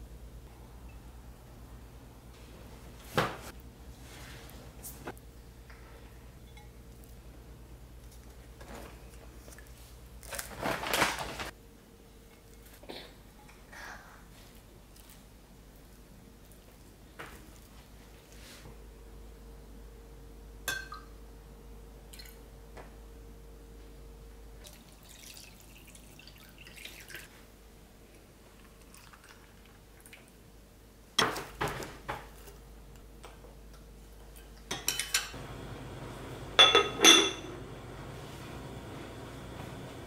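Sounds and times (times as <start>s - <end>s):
glass and ceramic kitchenware clinking: 6.4s - 6.8s, 20.7s - 21.1s, 34.7s - 35.4s, 36.6s - 37.6s.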